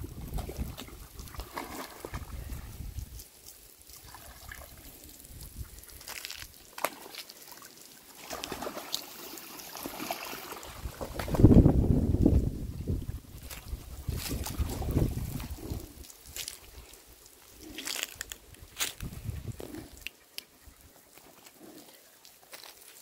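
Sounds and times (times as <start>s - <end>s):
wind buffeting microphone: 0.0s - 1.4s, 2.0s - 3.2s, 10.7s - 16.8s, 18.1s - 20.0s
hose water spraying and splashing: 0.0s - 11.5s, 12.8s - 20.4s, 21.2s - 23.0s.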